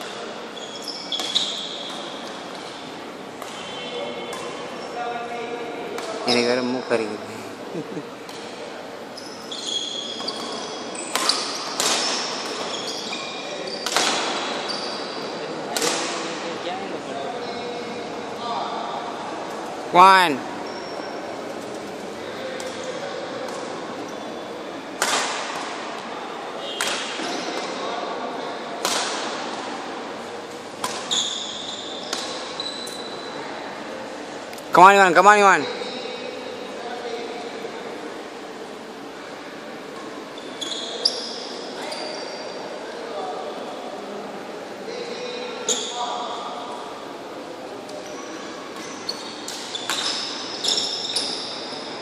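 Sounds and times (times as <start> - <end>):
shoes squeaking on court floor: 0.0 - 5.1, 8.0 - 16.4, 17.2 - 18.6, 19.5 - 25.8, 26.6 - 29.6, 30.2 - 33.5, 34.6 - 37.4, 39.8 - 42.8, 44.9 - 46.3, 47.8 - 52.0
rackets hitting shuttlecock: 10.3 - 12.7, 13.8 - 14.5, 15.8 - 16.3, 25.0 - 25.8, 26.8 - 27.7, 28.8 - 29.7, 30.8 - 31.1, 49.4 - 50.3.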